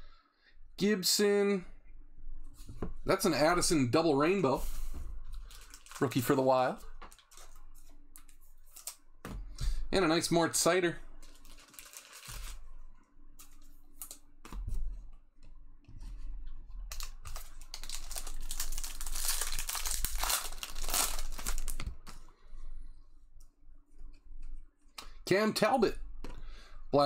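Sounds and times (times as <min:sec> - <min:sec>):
foil wrapper tearing and crinkling: 0:05.4 - 0:06.1, 0:11.3 - 0:12.6, 0:16.9 - 0:22.2.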